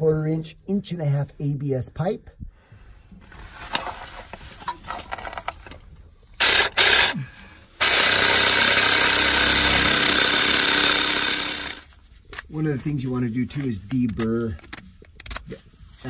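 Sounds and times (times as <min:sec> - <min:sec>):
faint handling noise: 0:03.1 - 0:06.3, 0:11.9 - 0:16.0
reciprocating saw cutting plastic pipe: 0:06.4 - 0:07.2, 0:07.8 - 0:11.9.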